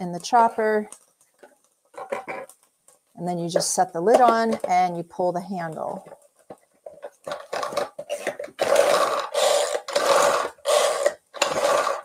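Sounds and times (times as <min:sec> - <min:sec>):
food chopper blades chopping: 0:08.6 - 0:12.0.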